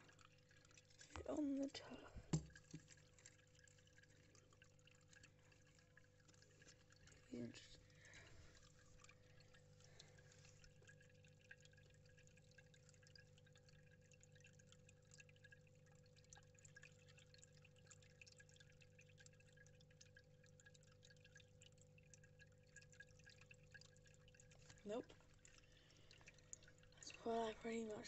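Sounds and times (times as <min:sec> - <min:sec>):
faint steady hum: 0:00.0 - 0:28.0
water trickling: 0:00.0 - 0:28.0.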